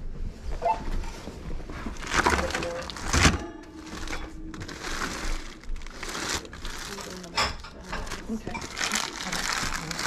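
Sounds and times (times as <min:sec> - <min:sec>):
items clattering in wire cart: 0:01.9 - 0:10.0.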